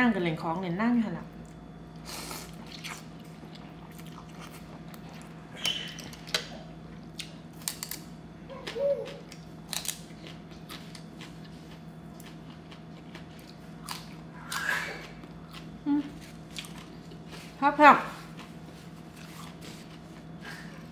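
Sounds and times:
faint steady hum: 0:00.0 - 0:20.9
chewing: 0:02.4 - 0:07.4, 0:08.6 - 0:17.6.

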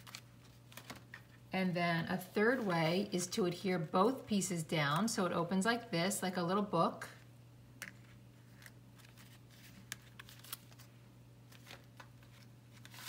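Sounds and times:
paper cards rustling: 0:00.0 - 0:01.4, 0:08.0 - 0:13.0
steady low hum: 0:00.0 - 0:12.9.

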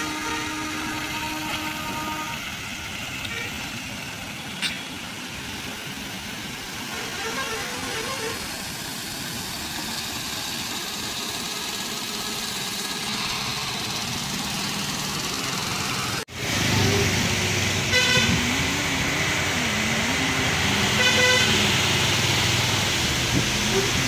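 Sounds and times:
truck horn honks: 0:00.0 - 0:02.5, 0:06.9 - 0:08.4, 0:17.8 - 0:18.7, 0:20.9 - 0:22.6
truck diesel engine running: 0:00.0 - 0:24.0
tyres on wet road: 0:00.0 - 0:24.0.

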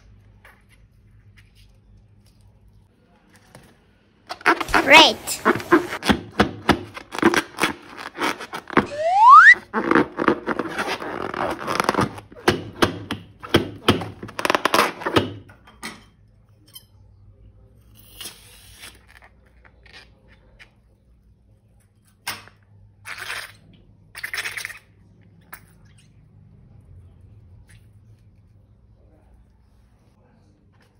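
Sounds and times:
rubbery squeaks and crackles: 0:04.3 - 0:12.8, 0:13.5 - 0:15.4.

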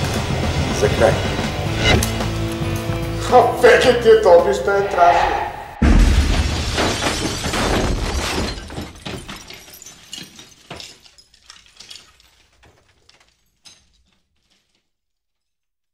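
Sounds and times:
shattering debris clinks and rattles: 0:06.3 - 0:15.7.

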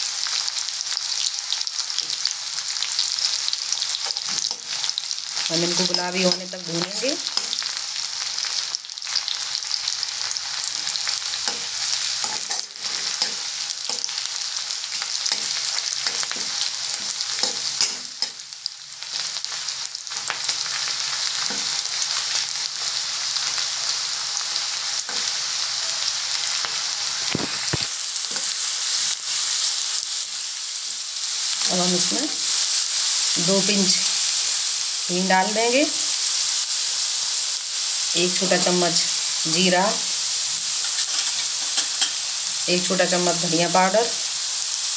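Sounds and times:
onion sizzling in hot oil: 0:00.0 - 0:44.9
steel spoon scraping a pan: 0:09.9 - 0:22.6, 0:27.2 - 0:29.6, 0:40.6 - 0:42.3.

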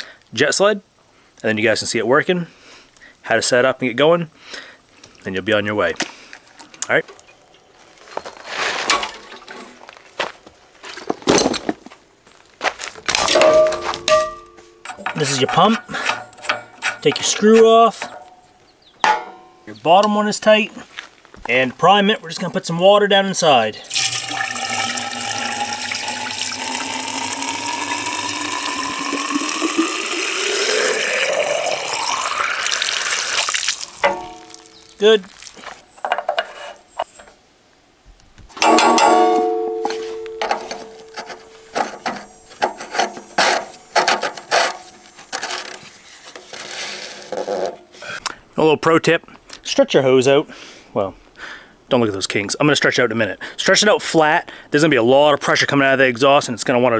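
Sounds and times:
footsteps on gravel and grass: 0:06.0 - 0:14.7, 0:20.2 - 0:22.8, 0:33.4 - 0:35.9, 0:39.8 - 0:41.7
sharp knocks: 0:19.0 - 0:19.6, 0:38.6 - 0:40.6
water pouring into pump casing: 0:23.8 - 0:35.6.

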